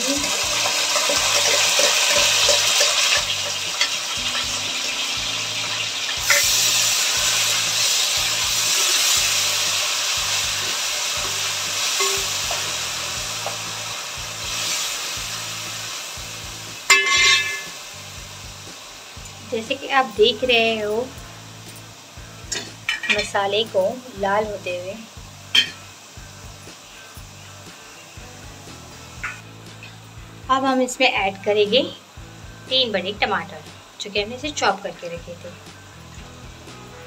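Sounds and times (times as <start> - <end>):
paste sizzling in hot oil: 0.0 - 37.0
metal spoon clattering on pot: 16.9 - 17.7.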